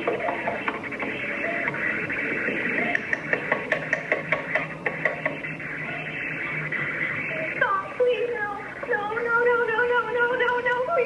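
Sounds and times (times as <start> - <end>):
woman's voice: 7.3 - 11.0.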